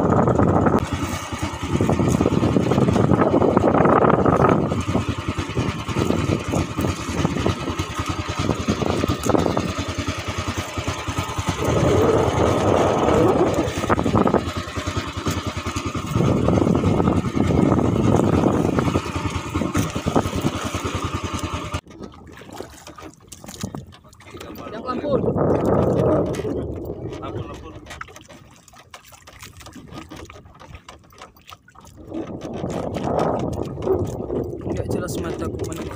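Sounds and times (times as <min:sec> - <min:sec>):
boat engine running: 0:00.0 - 0:35.9
water noise: 0:00.0 - 0:35.9
wind: 0:00.0 - 0:35.9.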